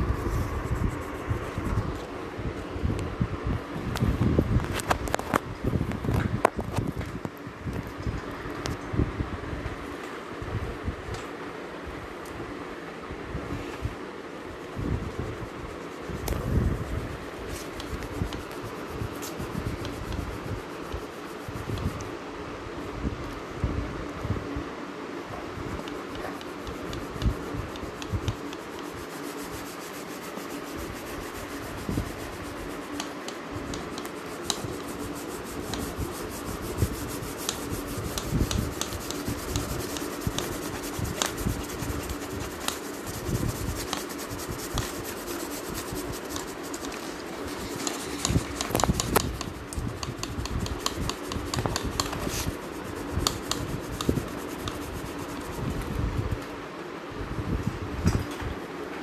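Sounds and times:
steady low hum: 0.0 - 59.0
pencil shading on paper: 25.8 - 55.7.

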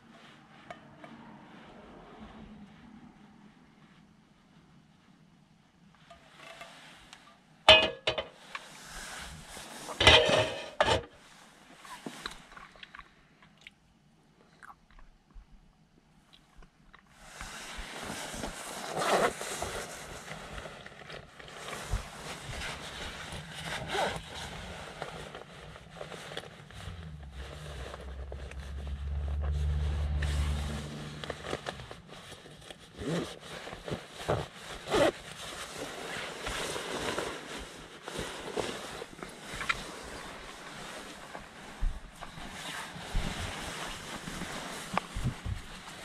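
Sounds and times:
jacket and seat fabric rustling: 5.9 - 12.6, 17.2 - 46.0
low hum: 26.7 - 32.1.

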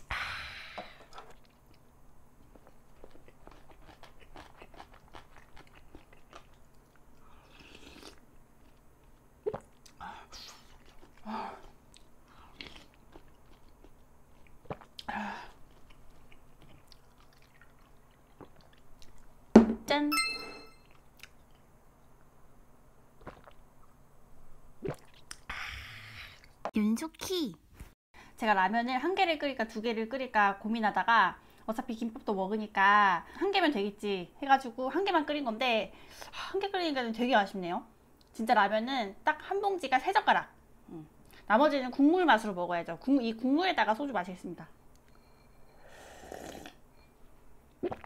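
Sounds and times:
wet chewing clicks: 1.2 - 10.0, 10.6 - 19.3, 23.2 - 23.6
slurping noodles: 7.5 - 8.2, 23.2 - 23.6, 45.9 - 46.8.

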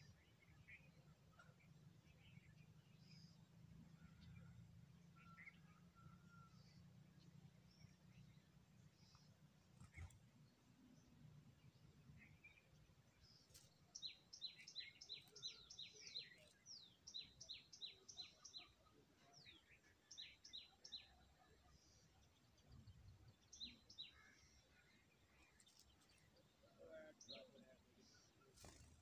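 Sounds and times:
nestling birds begging chirps: 7.6 - 29.0.

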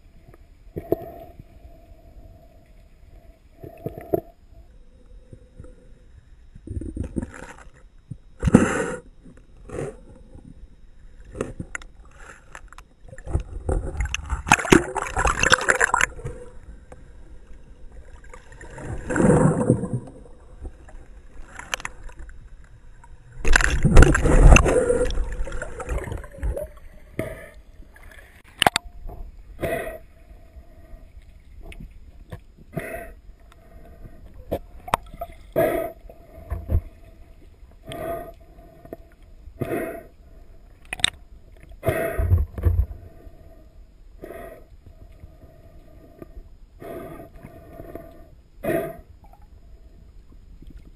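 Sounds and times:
water gurgling and bubbling: 13.0 - 28.9.

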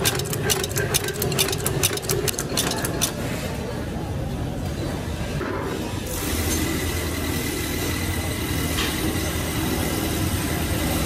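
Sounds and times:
welding machine hum and hiss: 6.1 - 11.0.

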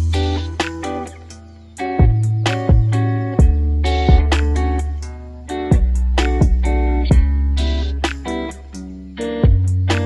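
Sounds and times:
low held bass: 0.0 - 0.8, 2.0 - 8.7
plucked guitar music: 0.0 - 10.0.

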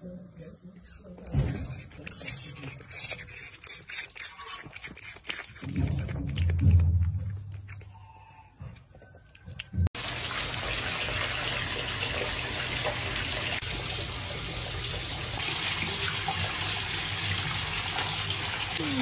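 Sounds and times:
water pouring into bath: 10.0 - 19.0.

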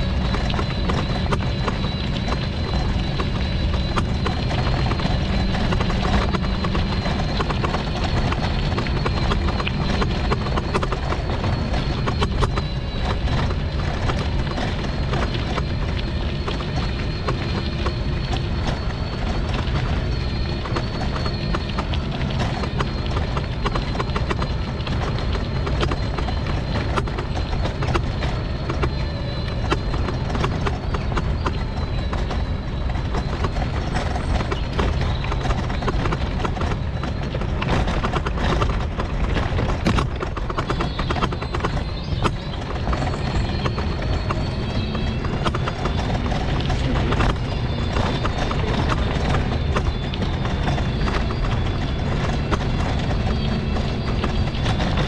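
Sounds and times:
rattles and knocks: 0.0 - 55.0
scooter wheels rumbling: 0.0 - 55.0.

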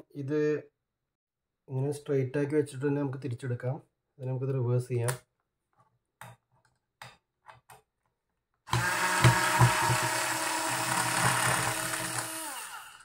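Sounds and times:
cordless screwdriver whine: 8.7 - 13.0.

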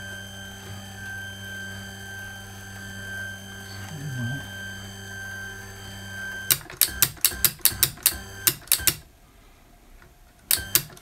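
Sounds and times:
motor whine: 0.0 - 8.6
sharp mechanical clicks: 6.5 - 9.1, 10.4 - 11.0.

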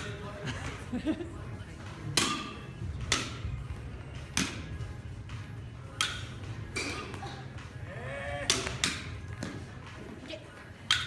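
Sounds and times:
baseball bat hitting balls: 2.0 - 4.9, 5.9 - 7.4, 8.4 - 9.8.

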